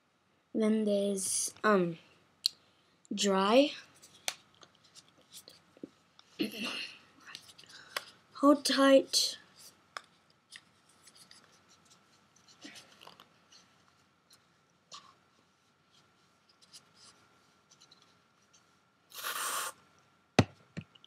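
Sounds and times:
faint rustling and handling: 3.5s - 19.0s
aerosol spray hiss: 19.2s - 19.8s.

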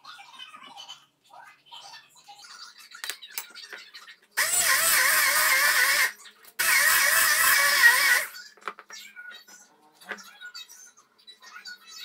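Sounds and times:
stick blender grinding: 4.4s - 8.4s.

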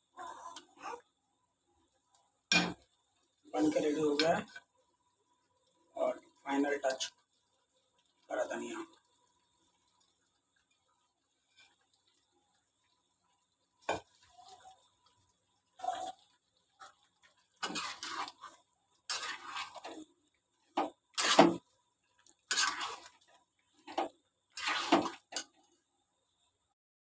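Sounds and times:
metal ladle scraping pan: 2.5s - 2.9s, 16.8s - 20.1s, 20.7s - 21.6s, 22.5s - 25.6s.

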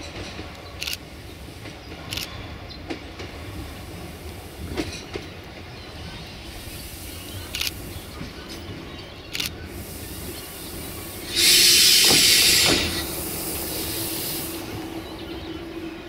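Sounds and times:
diesel railcar engine drone: 0.0s - 16.0s
air brake hiss: 9.7s - 14.8s.

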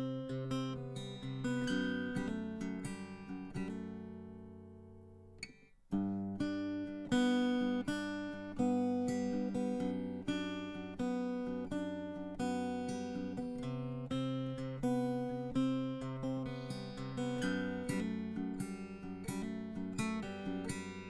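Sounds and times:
acoustic guitar picked and strummed: 0.0s - 21.0s.

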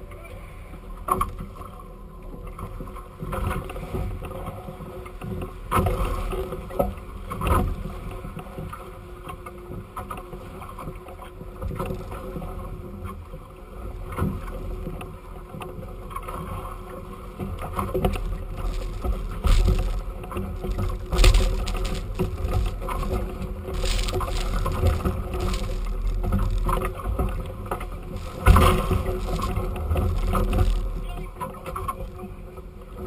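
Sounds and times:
water rushing along hulls: 13.6s - 33.0s
waves slapping hulls: 15.6s - 32.4s.

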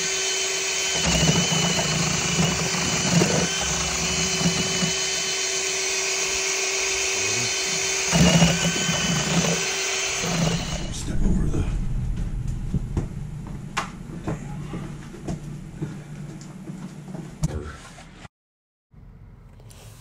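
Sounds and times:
cordless drill mixing at high speed: 0.0s - 11.0s.

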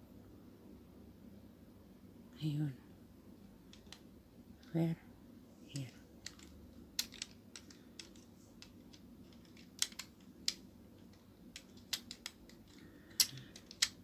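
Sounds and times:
plastic puzzle pieces clicking: 3.7s - 4.1s, 5.7s - 14.0s.

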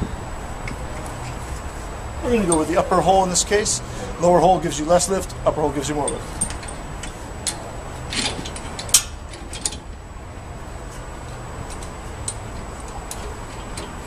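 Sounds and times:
metal clicks and clanks: 6.0s - 9.9s.

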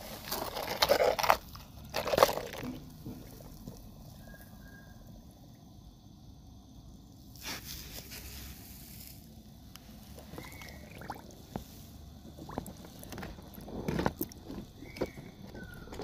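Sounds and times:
water splashing in a tub: 10.0s - 14.7s.

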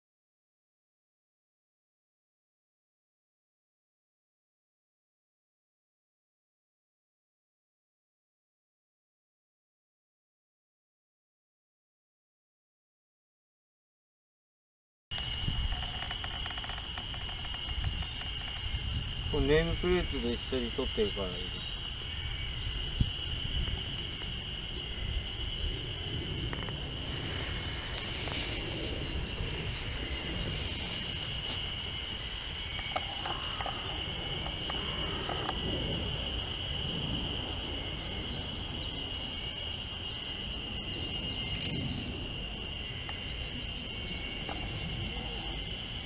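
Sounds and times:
high-pitched insect trill: 15.1s - 46.0s.

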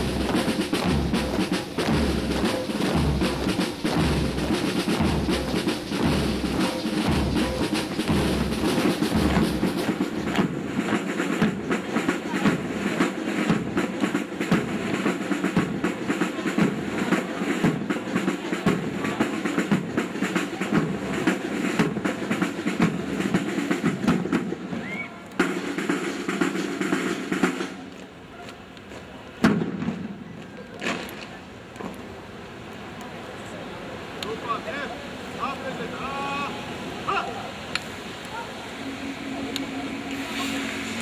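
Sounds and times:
boots marching on pavement: 0.0s - 12.7s, 25.4s - 32.1s.

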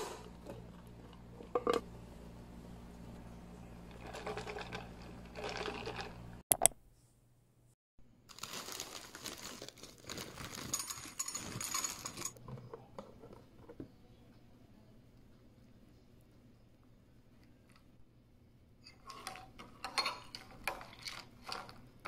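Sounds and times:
plastic bag crinkling: 8.3s - 12.4s.

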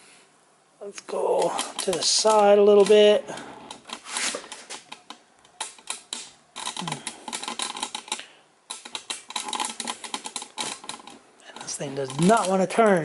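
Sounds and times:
chainsaw chain links clicking: 5.6s - 13.0s.

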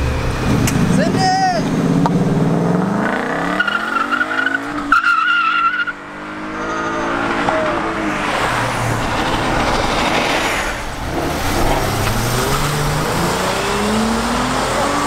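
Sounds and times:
car engine driving off: 0.0s - 15.0s
road noise of passing car: 0.0s - 15.0s
tire squeal: 3.5s - 14.0s.

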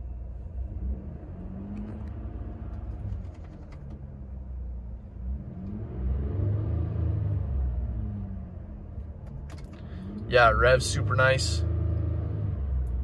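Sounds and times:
car engine idling and revving: 0.0s - 13.0s.

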